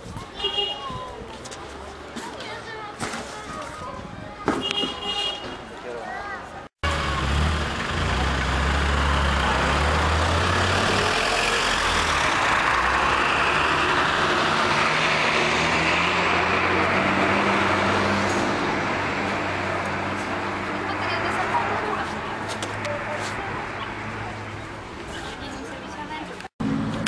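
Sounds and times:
road noise rushing: 6.5 - 27.0
bus engine: 6.6 - 27.0
vehicle engines running: 6.8 - 27.0.

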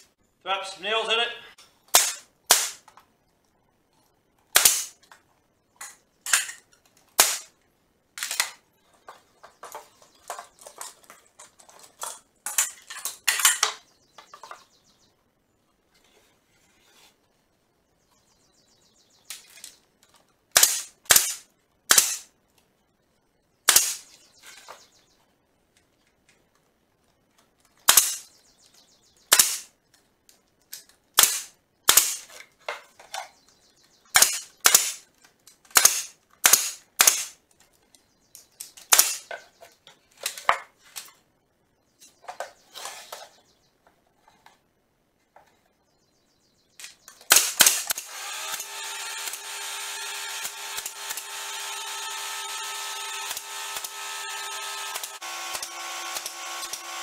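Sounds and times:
nail gun shots into wood: 1.9 - 2.9, 4.5 - 5.0, 7.2 - 7.5, 20.5 - 22.3, 23.7 - 24.1, 27.9 - 28.3, 29.3 - 29.7, 31.2 - 32.3, 34.2 - 35.0, 35.7 - 37.4, 38.9 - 39.3, 47.2 - 57.0.

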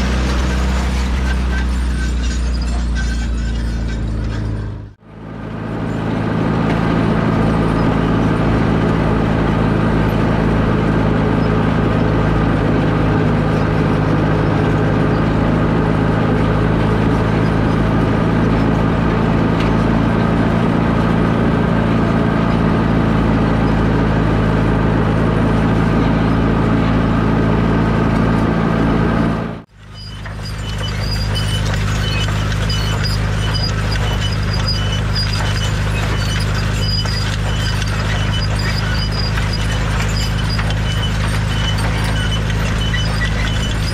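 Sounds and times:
tractor engine running: 0.0 - 43.9
grain drill rattling: 29.7 - 43.9.

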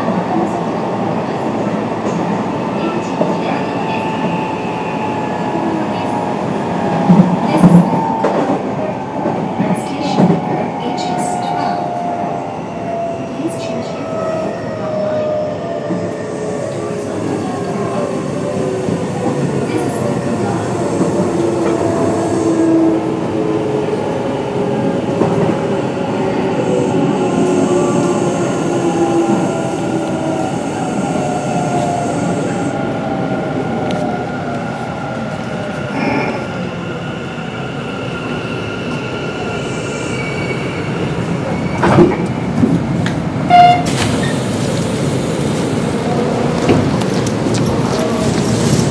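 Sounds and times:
rumble of train wheels: 0.0 - 48.9
wheel and rail rumble: 41.0 - 48.9.

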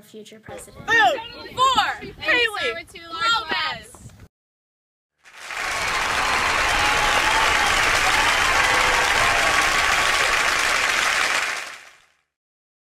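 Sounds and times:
crowd applauding: 5.2 - 12.2.

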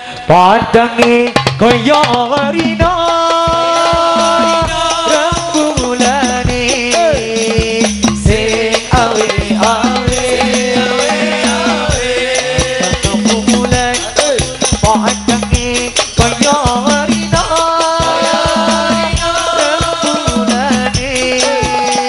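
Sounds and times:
frame drums beating: 0.6 - 22.0
person singing melody: 15.2 - 22.0.

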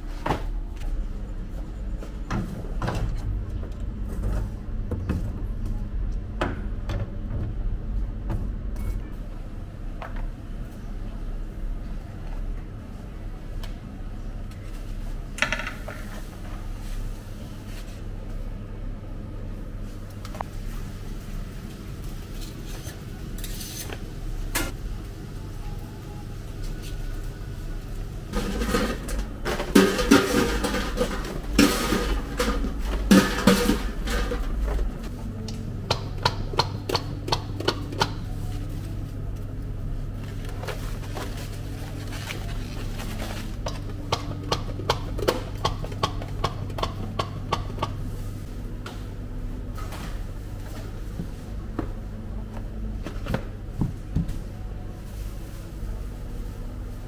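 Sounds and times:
low machine hum: 0.0 - 57.0
kitchen utensils clattering: 28.4 - 34.9.

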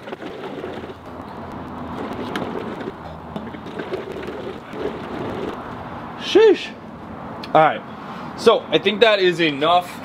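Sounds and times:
air and liquid rushing through hose: 0.0 - 1.2, 1.8 - 5.6.

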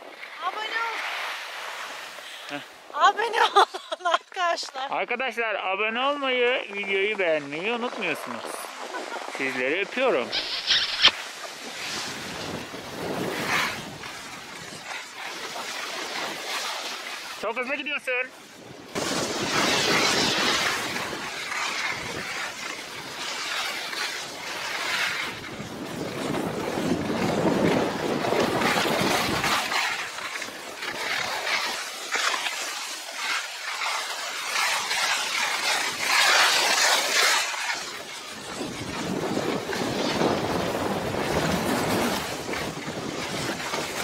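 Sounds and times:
wind rushing over microphone: 6.6 - 14.9, 18.5 - 23.2, 25.0 - 29.8, 38.2 - 44.0
skis hissing on snow: 6.6 - 17.9, 18.6 - 44.0.

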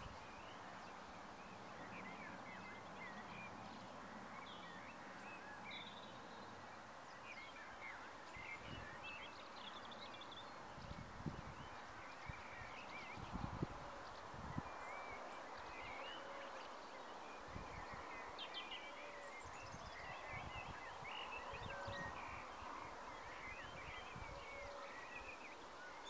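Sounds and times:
steady background hiss: 22.2 - 26.0.

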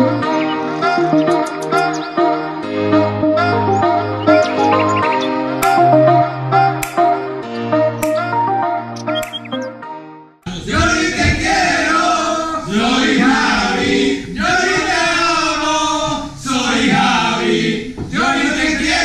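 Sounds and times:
music with plucked tones: 0.0 - 10.2
men singing together loudly: 10.5 - 19.0.

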